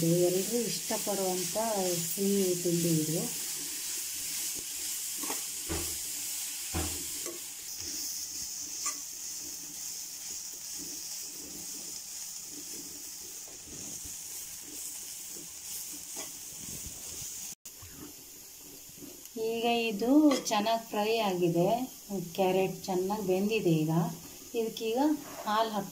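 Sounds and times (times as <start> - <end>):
carrot sizzling in ghee: 0.0 - 25.9
wooden spatula scraping pan: 3.2 - 17.3, 25.1 - 25.8
spatula knocking against pan: 5.7 - 6.0, 6.7 - 7.4.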